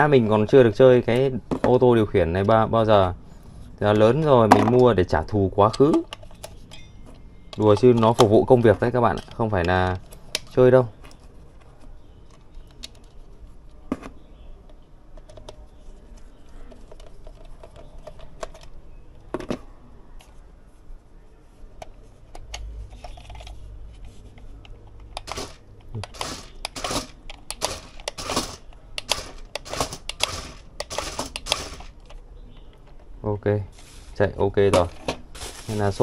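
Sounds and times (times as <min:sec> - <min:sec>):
toy car clicking: 0:25.1 - 0:32.2.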